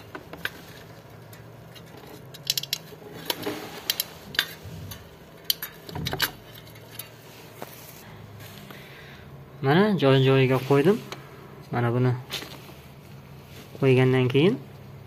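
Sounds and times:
small metallic clicks and clinks: 1.2s - 7.2s.

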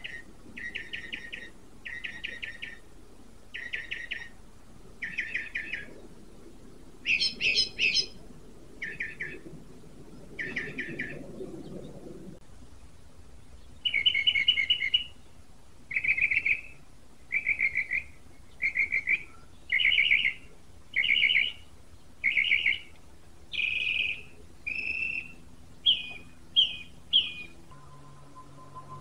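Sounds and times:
songbird trilling: 0.0s - 2.8s, 3.5s - 4.4s, 5.0s - 5.9s, 7.0s - 8.2s, 8.8s - 9.4s, 13.8s - 15.2s, 15.9s - 22.9s, 23.5s - 27.6s.

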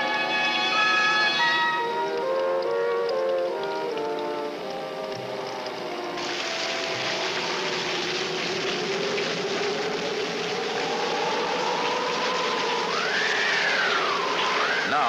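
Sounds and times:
wind howling and whistling: 6.3s - 15.0s.

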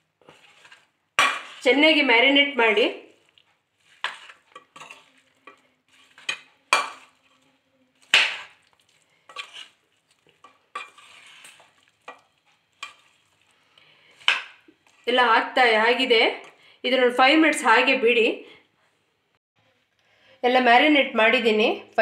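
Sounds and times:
metal spoon scraping in pan: 0.1s - 15.1s.

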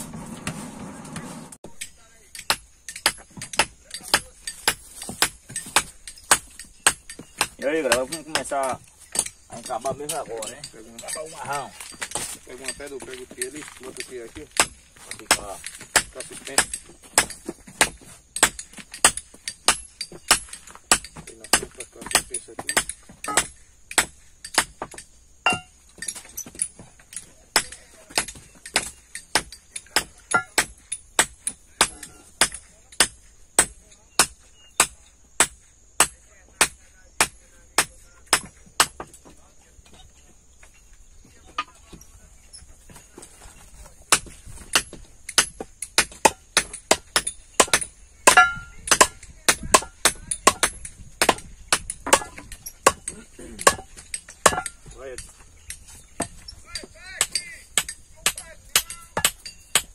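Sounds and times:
metallic knocks and clinks: 1.6s - 34.9s, 44.7s - 59.9s
hammer striking wooden handle: 16.0s - 26.6s, 44.7s - 54.8s.

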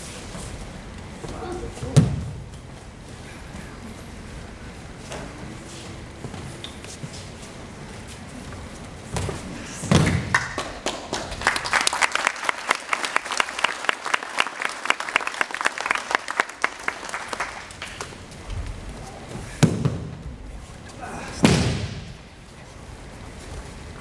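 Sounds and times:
audience clapping: 10.0s - 18.3s.

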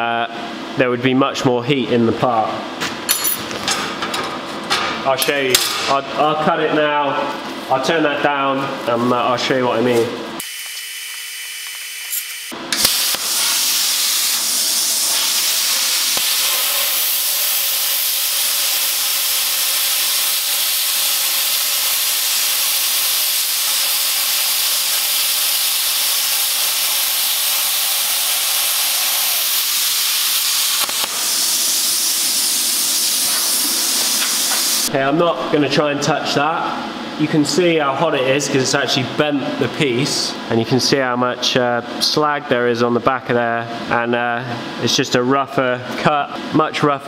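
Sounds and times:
plasma cutter hissing: 11.6s - 34.9s.

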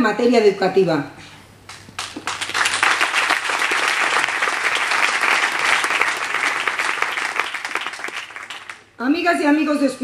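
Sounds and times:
audience applauding: 1.7s - 8.8s.

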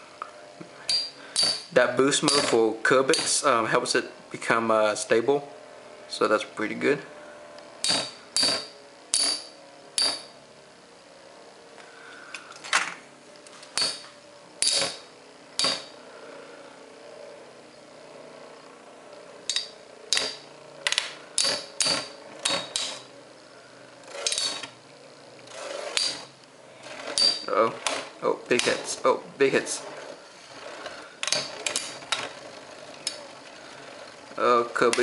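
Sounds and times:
spinning tops clashing metal clicks: 19.5s - 23.1s, 24.1s - 24.8s.

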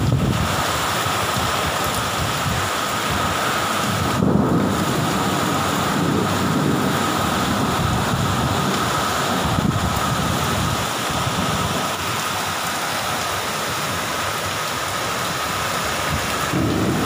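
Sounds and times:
gusty wind buffeting microphone: 0.0s - 12.3s, 16.1s - 17.0s
heavy rain downpour: 0.0s - 17.0s.

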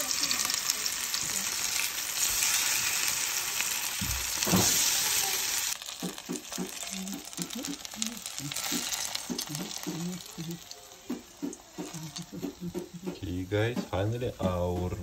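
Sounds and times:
fritters sizzling in hot oil: 0.0s - 14.8s
thump: 4.0s - 4.8s.

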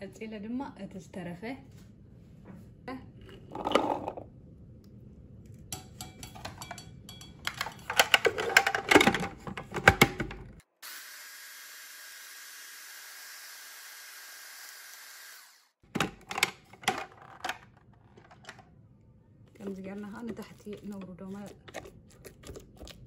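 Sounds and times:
food processor motor running: 10.8s - 15.7s.

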